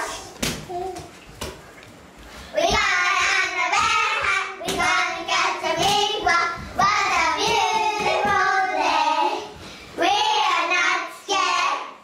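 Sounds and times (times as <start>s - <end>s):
children singing: 2.7s - 12.0s.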